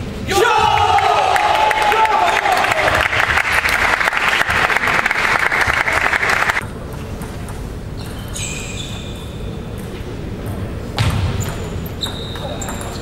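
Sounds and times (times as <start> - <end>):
spectators applauding: 0.8 - 6.6
short high-pitched squeaks: 8.0 - 9.6.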